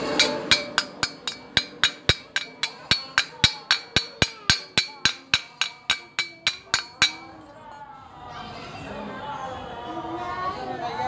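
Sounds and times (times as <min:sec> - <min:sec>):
hammer tapping on steel: 0:00.0 - 0:07.4.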